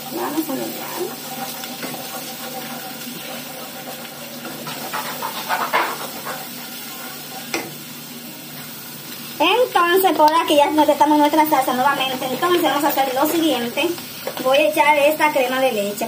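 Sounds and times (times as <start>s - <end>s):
sauce sizzling: 0.0s - 16.0s
wooden spoon scraping a pot: 0.3s - 7.6s.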